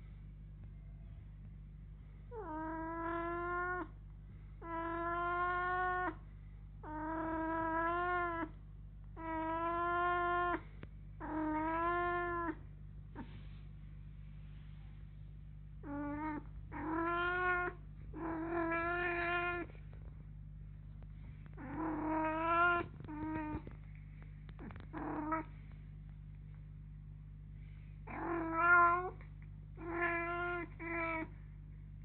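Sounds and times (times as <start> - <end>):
steady low hum: 0.0 - 32.0
kitten meowing: 11.2 - 12.6, 15.8 - 19.7, 21.6 - 23.7, 29.8 - 31.3.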